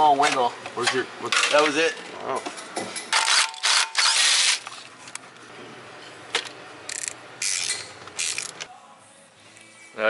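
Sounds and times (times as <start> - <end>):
tools scraping and rustling: 6.0 - 8.7.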